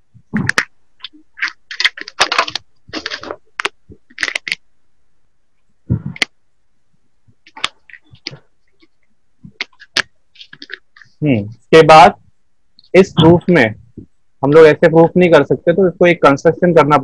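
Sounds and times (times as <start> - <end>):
short crackles and sharp clicks: 0.3 - 4.6.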